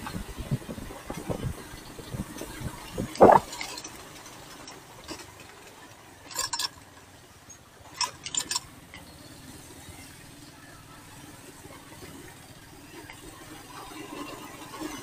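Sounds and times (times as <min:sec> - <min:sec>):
wind buffeting microphone: 0:00.0 - 0:03.5.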